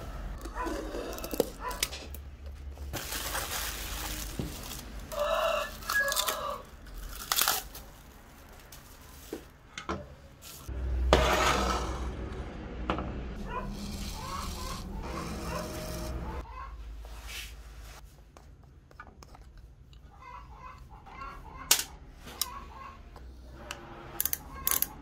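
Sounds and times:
plastic wrap crinkling and tearing: 0:02.8 - 0:09.3.

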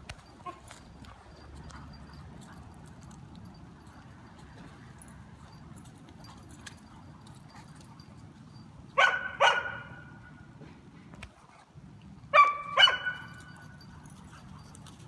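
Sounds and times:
dog barking: 0:09.0 - 0:10.1, 0:12.3 - 0:13.3.

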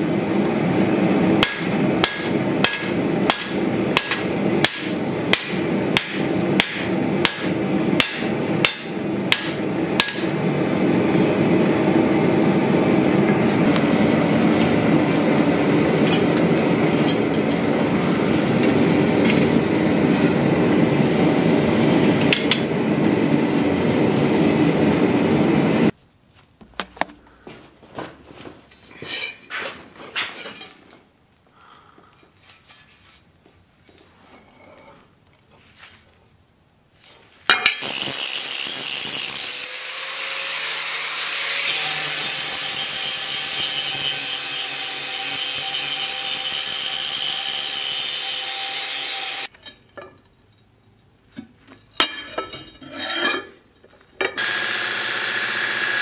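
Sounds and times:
hammer ringing on anvil: 0:01.4 - 0:10.4
faint knocks and handling: 0:26.3 - 0:31.0.

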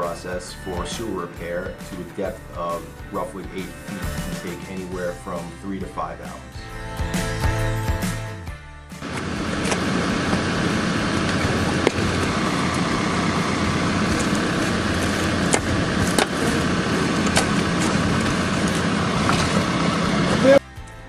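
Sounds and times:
engine droning: 0:09.0 - 0:20.6.

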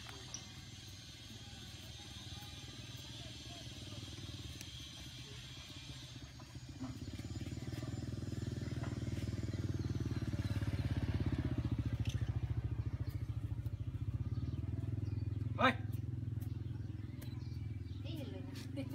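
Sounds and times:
small engine idling: 0:00.0 - 0:18.9.

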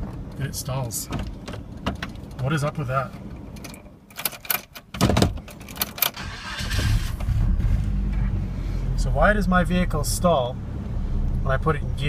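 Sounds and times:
keys rattling in ignition: 0:01.1 - 0:07.0
starter motor cranking: 0:06.1 - 0:07.8.

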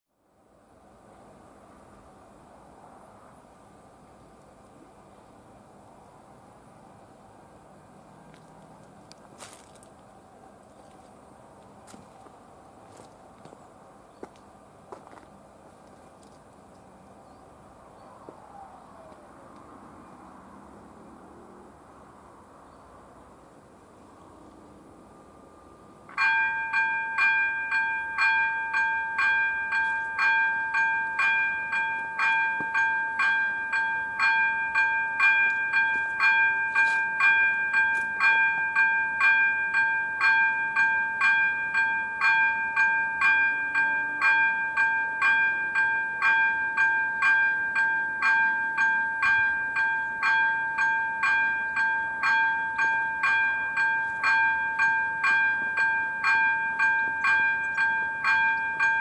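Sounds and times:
held ringing tone: 0:26.1 - 0:59.0
level crossing bell dinging: 0:26.2 - 0:59.0.

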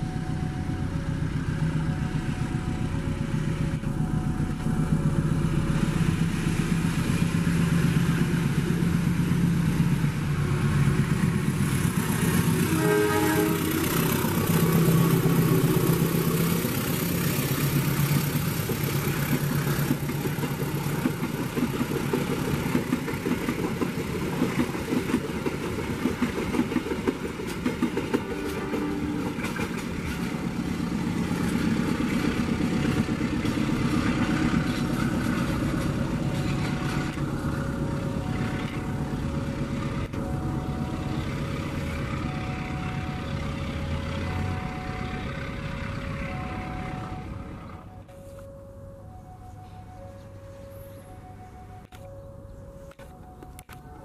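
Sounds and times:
diesel locomotive engine droning: 0:00.0 - 0:54.0
train wheels clicking over rail joints: 0:13.8 - 0:40.3.

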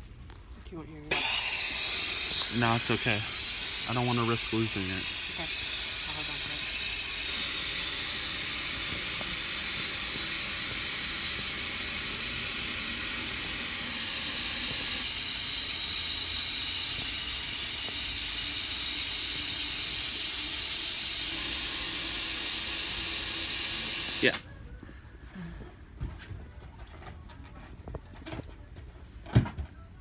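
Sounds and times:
helium hissing into balloon: 0:01.1 - 0:24.4.

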